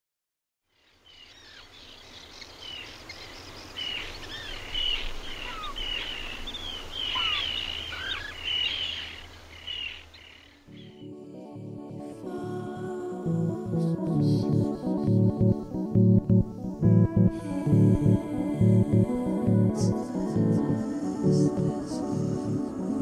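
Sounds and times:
outdoor background noise: 0:00.7 - 0:10.7
birds chirping and whistling: 0:01.2 - 0:11.0.

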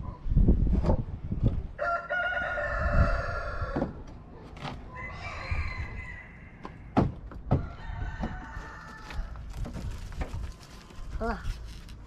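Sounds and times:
rooster crowing: 0:01.8 - 0:03.8, 0:04.9 - 0:06.6, 0:07.6 - 0:09.3.

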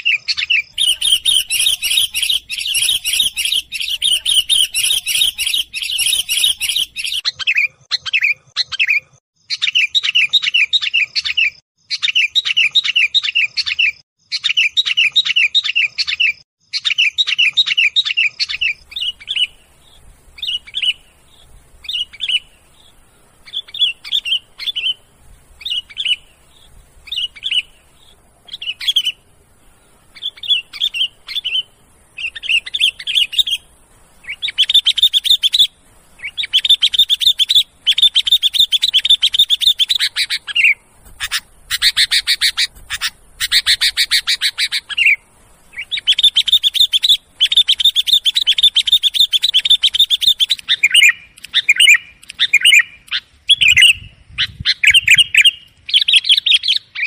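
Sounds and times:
bulbuls chattering: 0:00.7 - 0:07.2, 0:18.6 - 0:52.8
faint hiss: 0:18.6 - 0:56.4.

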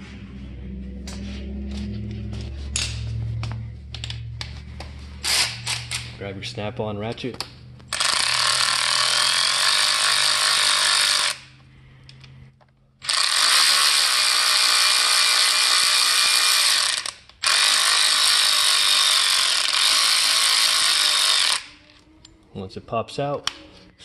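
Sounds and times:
power ratchet spinning: 0:03.8 - 0:06.2, 0:07.9 - 0:11.6, 0:13.0 - 0:21.9.

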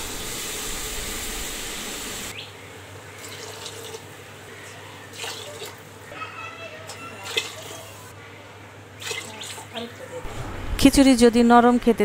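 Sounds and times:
water pouring into a pot: 0:03.2 - 0:04.2, 0:05.1 - 0:05.8, 0:09.0 - 0:09.8.

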